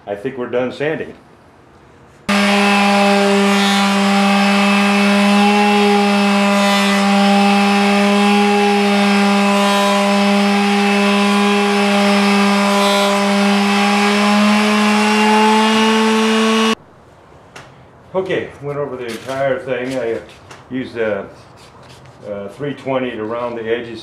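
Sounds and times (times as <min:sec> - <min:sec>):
finishing sander running: 0:02.3 - 0:16.8.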